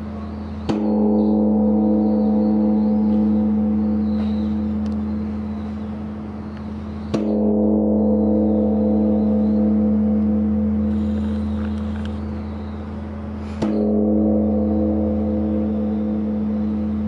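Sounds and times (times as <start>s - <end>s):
large bronze bell ringing: 0.0s - 11.4s.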